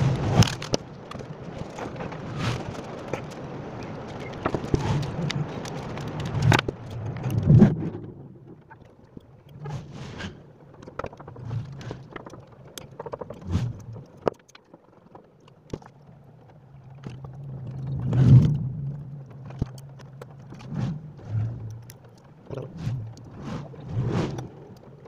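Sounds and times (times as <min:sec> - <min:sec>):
low hum: 0:16.0 - 0:25.0.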